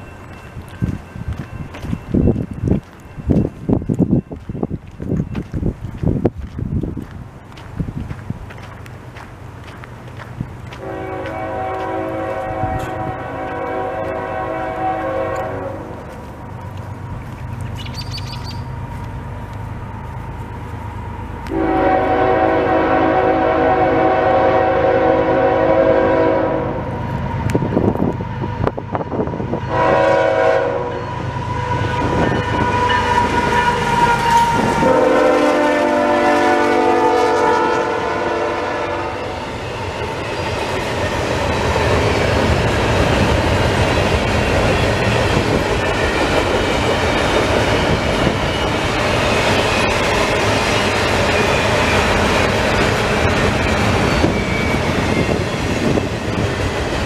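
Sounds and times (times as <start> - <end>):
train wheel clatter: 0.0 - 14.3, 39.4 - 57.0
low rumble of train: 0.0 - 57.0
locomotive air horn: 10.8 - 16.1, 21.5 - 26.9, 29.7 - 39.4.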